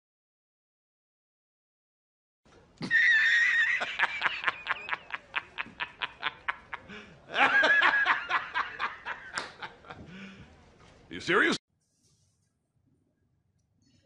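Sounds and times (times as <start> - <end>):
man laughing hysterically: 2.8 - 10.0.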